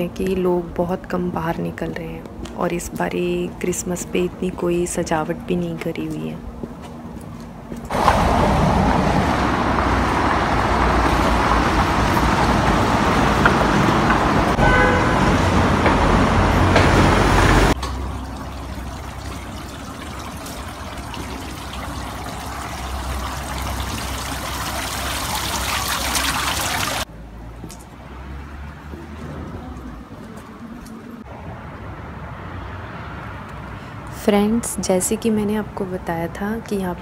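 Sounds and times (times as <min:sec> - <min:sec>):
traffic on wet road: 0:07.9 - 0:34.0
car horn toot: 0:14.6 - 0:15.5.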